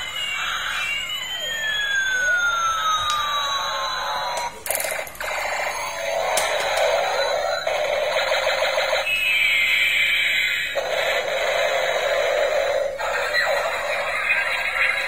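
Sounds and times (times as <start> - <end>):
falling whistling tone: 0.0 - 4.4, 9.0 - 10.7
toy electronic sound effects and tune: 0.0 - 15.0.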